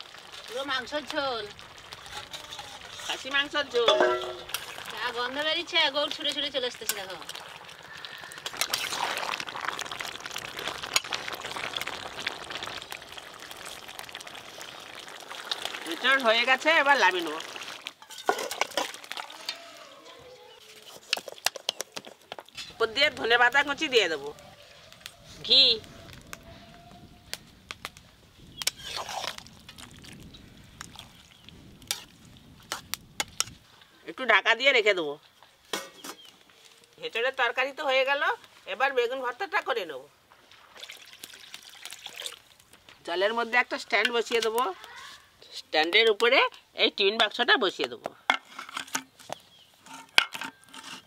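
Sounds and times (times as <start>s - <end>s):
thick curry bubbling: 0.0s - 34.4s
ladle scraping pot: 2.0s - 4.9s, 17.9s - 19.6s, 28.6s - 29.4s, 48.3s - 51.0s
ladle clinking on metal pot: 3.8s - 4.6s, 18.0s - 18.9s
ladle clinking against pan: 3.9s - 4.4s.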